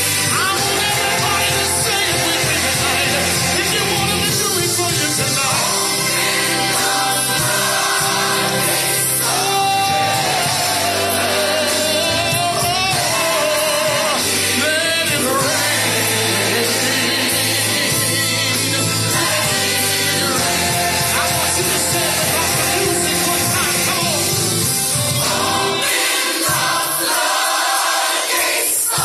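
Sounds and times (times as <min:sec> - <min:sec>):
instrumental backing: 0:00.0 - 0:29.0
person singing gospel: 0:00.0 - 0:29.0.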